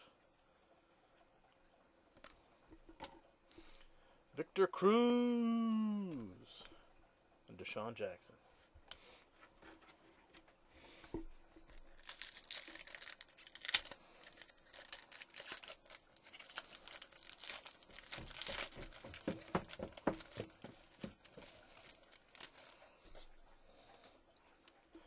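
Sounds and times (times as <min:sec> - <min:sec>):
foil wrapper tearing and crinkling: 0:11.6 - 0:23.3.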